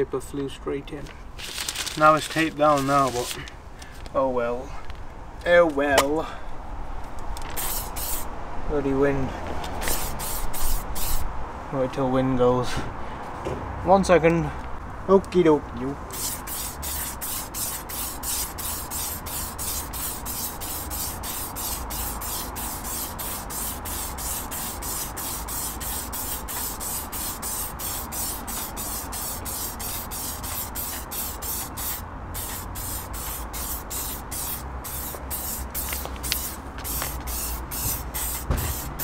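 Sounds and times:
aerosol can spraying hiss: 0:07.6 - 0:08.3, 0:09.8 - 0:11.2, 0:16.1 - 0:39.0.

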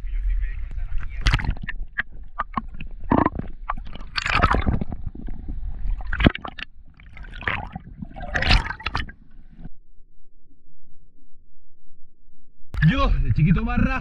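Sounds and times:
seawater sloshing and splashing: 0:01.0 - 0:09.6.

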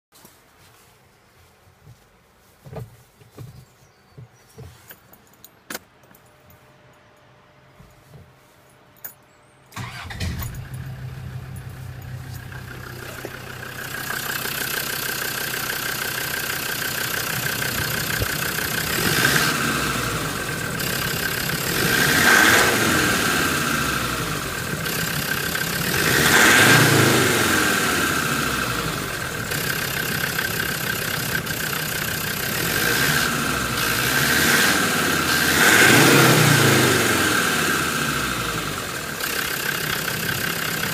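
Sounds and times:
diesel engine starting and revving: 0:09.7 - 0:40.9.

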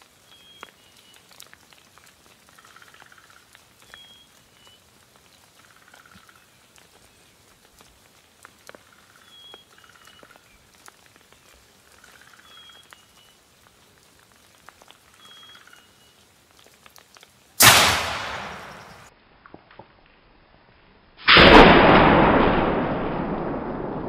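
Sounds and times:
faint bird chirps: 0:00.2 - 0:01.2, 0:02.6 - 0:04.9, 0:08.8 - 0:10.6, 0:11.3 - 0:13.4, 0:15.1 - 0:16.2
loud shotgun shot: 0:17.6 - 0:19.1, 0:21.3 - 0:24.0.

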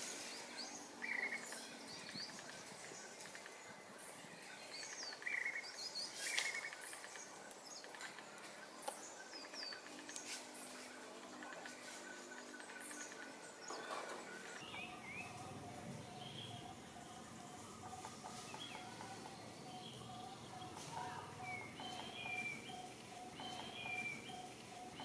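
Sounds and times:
small birds chirping: 0:00.0 - 0:25.0
bird trills: 0:11.4 - 0:25.0.

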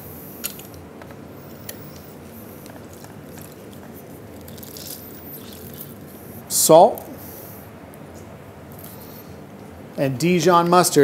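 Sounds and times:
wet squishing of lemons: 0:02.6 - 0:06.2.

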